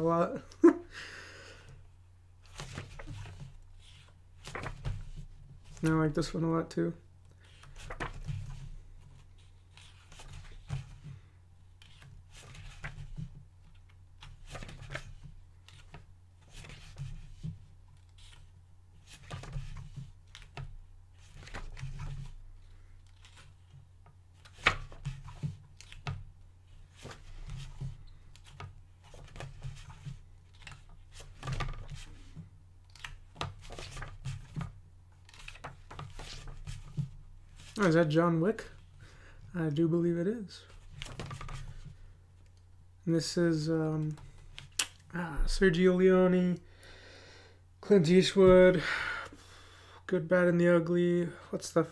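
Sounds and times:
book pages turning: 2.4 - 6.2, 7.4 - 11.2, 11.8 - 38.0, 40.6 - 42.6.

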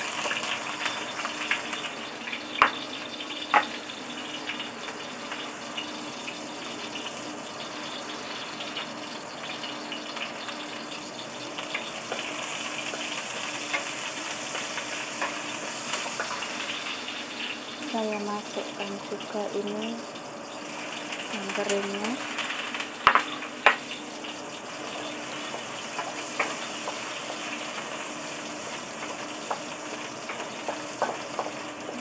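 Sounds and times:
ginger and garlic sizzling in oil: 0.0 - 32.0
spatula scraping and stirring: 25.0 - 32.0
wooden spatula knocking on pan: 30.6 - 32.0.

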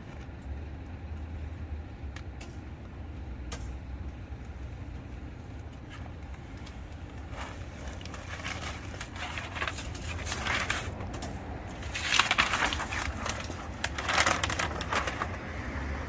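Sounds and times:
paper tape peeling and crumpling: 6.5 - 15.5.

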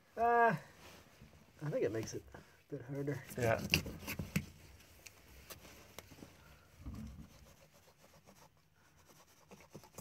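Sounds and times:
soft low rustle of plastic: 0.7 - 7.4.

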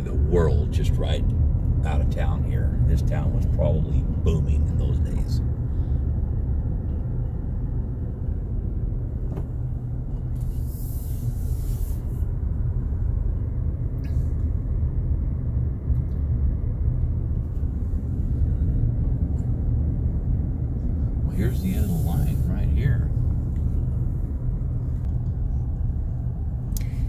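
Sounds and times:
car engine and tyres rumbling: 0.0 - 27.0
faint hiss: 10.4 - 12.2, 21.3 - 23.0.

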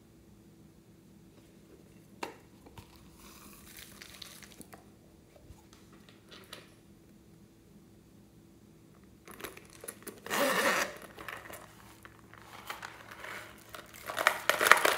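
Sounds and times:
plastic container handling: 9.3 - 14.9
small pieces pattering: 11.0 - 14.9.

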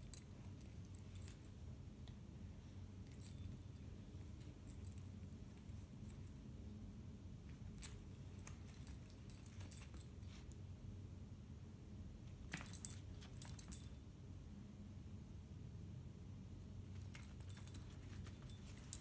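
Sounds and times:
dog collar tags jingling: 3.0 - 6.4, 7.6 - 10.4, 12.4 - 14.0, 16.9 - 19.0.

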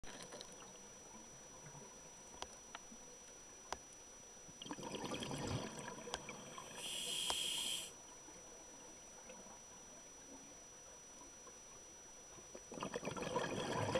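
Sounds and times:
bubbling water: 4.6 - 7.0, 12.7 - 13.9
hiss: 6.8 - 7.9.

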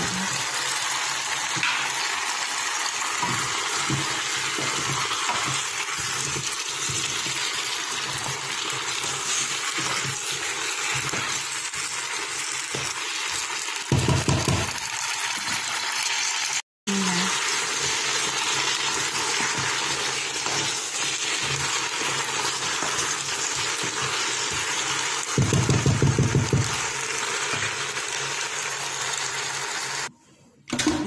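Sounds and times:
vegetables knocking against a pot: 12.6 - 15.0, 18.1 - 26.9.

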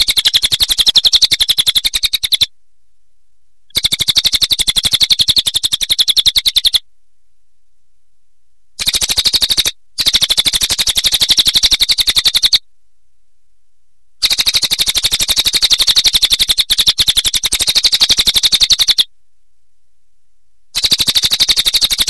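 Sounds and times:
jay rattling call: 0.0 - 2.5.

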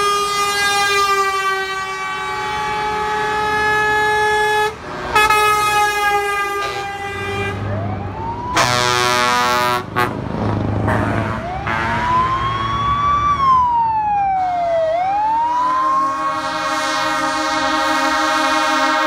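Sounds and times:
truck air horns blaring: 0.0 - 7.8, 8.5 - 12.9, 15.6 - 19.0
siren wailing: 7.4 - 9.4, 11.4 - 18.2.

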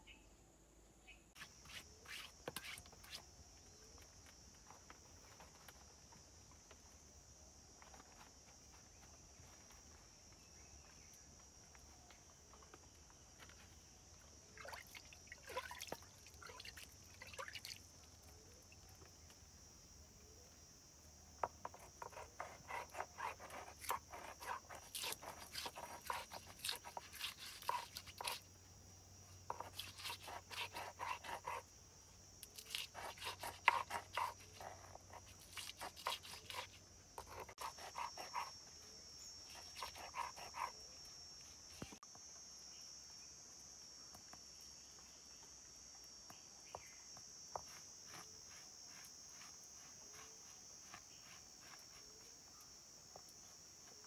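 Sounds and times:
insect drone: 0.0 - 54.0
stone grinding chillies: 21.6 - 28.4, 32.6 - 38.5.

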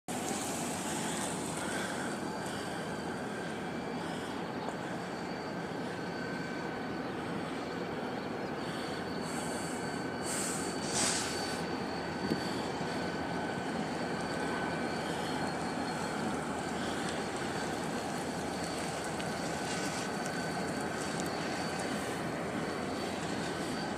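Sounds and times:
train wheels rumbling on rails: 0.1 - 23.9
short hissing bursts: 10.2 - 11.6.

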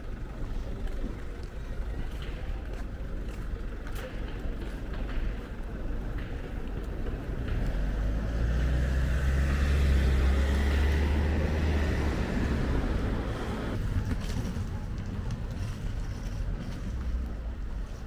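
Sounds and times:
vehicle driving past: 7.3 - 13.8.

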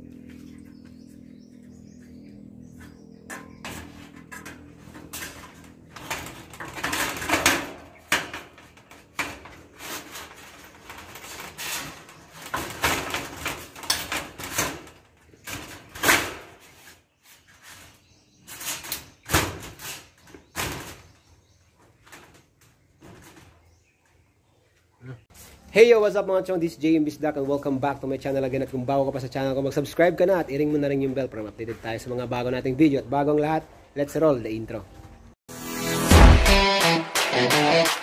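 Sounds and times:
metal sheet rattling and banging: 3.3 - 16.7.

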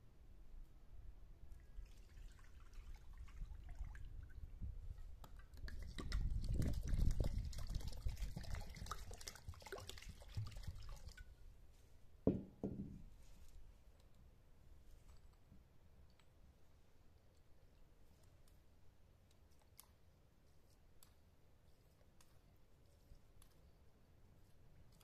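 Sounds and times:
water pouring into bowl: 1.8 - 4.4, 5.7 - 11.3
clay jug knocking on concrete: 12.3 - 13.1.

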